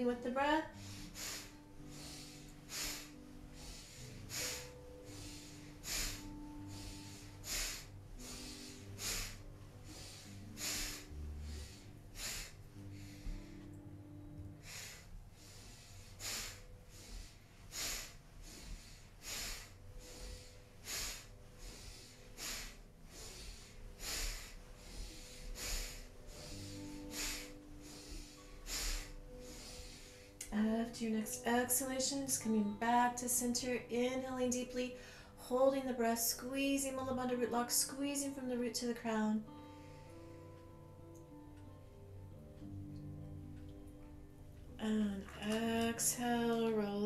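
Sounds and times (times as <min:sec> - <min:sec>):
soft background music: 0:00.0 - 0:47.0
person breathing hard: 0:00.7 - 0:30.5.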